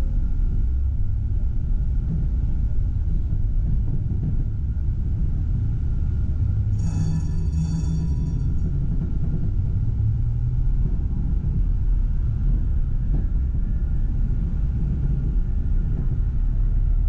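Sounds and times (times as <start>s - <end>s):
faint steady whine: 0.0s - 12.6s
tram wheels rumbling on rail: 0.0s - 17.0s
short high ringing: 6.8s - 8.8s.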